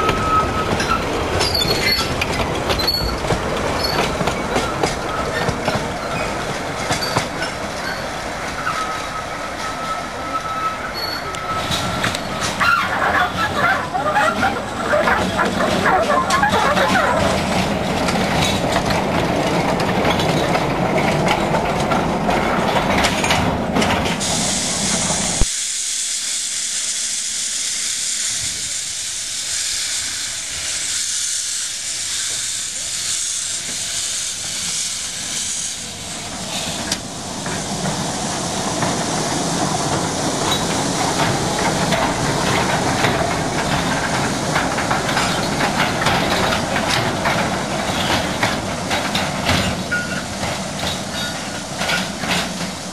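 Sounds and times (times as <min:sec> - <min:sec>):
train wagons on rails: 0:00.0 - 0:25.5, 0:26.5 - 0:52.9
loud steam hiss: 0:00.0 - 0:52.9
steam locomotive running: 0:00.0 - 0:52.9.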